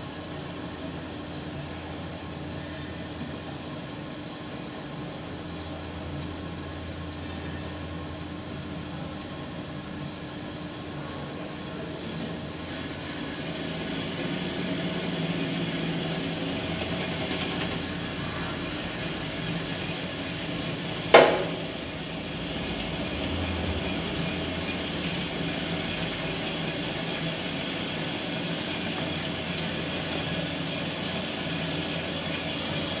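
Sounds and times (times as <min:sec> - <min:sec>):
sharp metal clank: 0:21.2 - 0:21.8.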